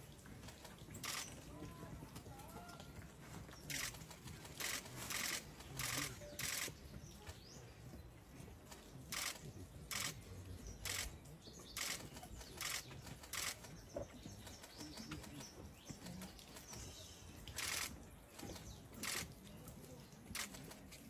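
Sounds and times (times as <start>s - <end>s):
camera shutter clicks: 1.0s - 1.3s, 3.7s - 4.0s, 4.6s - 6.7s, 9.1s - 10.2s, 10.9s - 11.1s, 12.6s - 13.6s, 17.6s - 17.9s, 19.0s - 19.3s, 20.4s - 20.6s.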